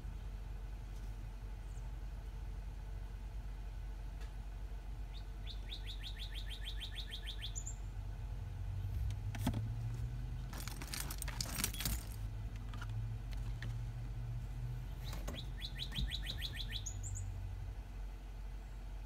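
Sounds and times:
small bird trilling: 5.1s - 7.8s, 15.0s - 17.3s
metallic jingling and rattling: 10.3s - 12.9s.

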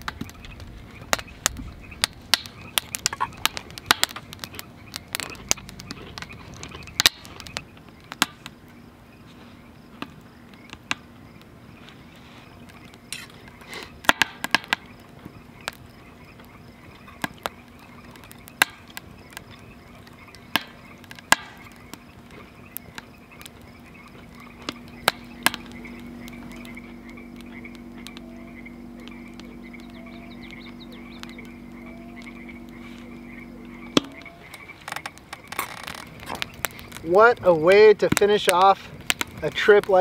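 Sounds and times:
frogs calling: 0.0s - 40.0s
low steady drone: 11.2s - 37.2s.

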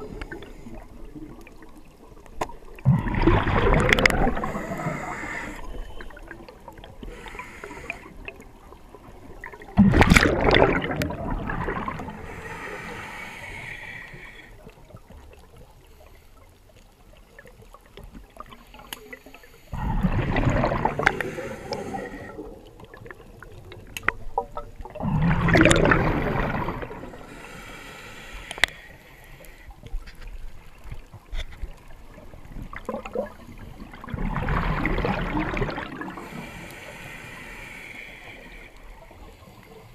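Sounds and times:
water gurgling: 0.0s - 15.6s, 19.7s - 27.6s, 30.4s - 39.1s
water bubbling and sloshing: 0.0s - 39.9s.

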